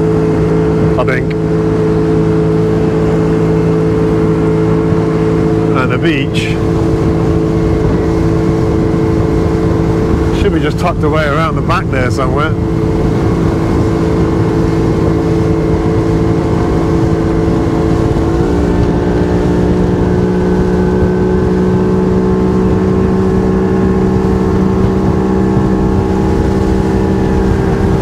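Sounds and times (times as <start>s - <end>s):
motorboat engine running: 0.0s - 28.0s.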